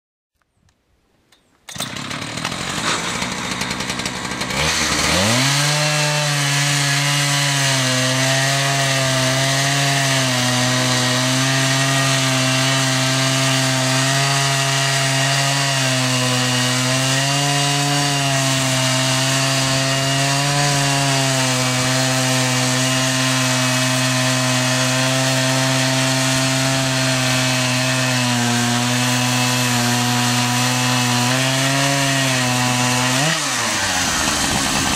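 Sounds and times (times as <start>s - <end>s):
sawmill gasoline engine running: 1.7s - 6.2s, 33.5s - 34.9s
saw cutting through log: 1.7s - 34.9s.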